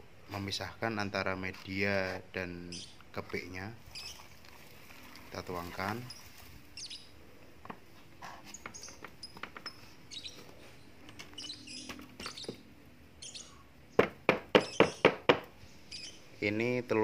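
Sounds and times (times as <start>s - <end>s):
beetles rustling on a sieve: 3.2s - 6.8s.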